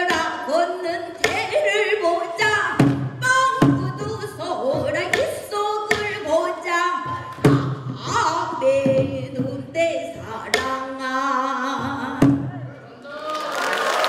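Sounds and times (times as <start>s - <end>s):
woman singing with held notes: 0.0s - 12.7s
barrel drum strikes: 2.7s - 6.3s.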